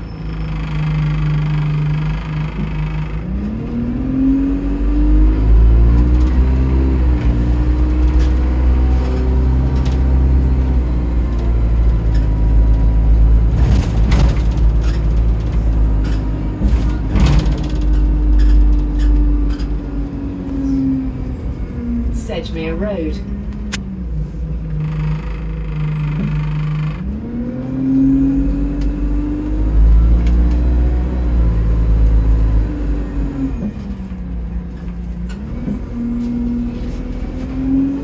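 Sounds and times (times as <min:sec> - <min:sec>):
bus diesel engine: 0:00.0 - 0:38.0
sharp clicks and knocks: 0:13.5 - 0:19.8.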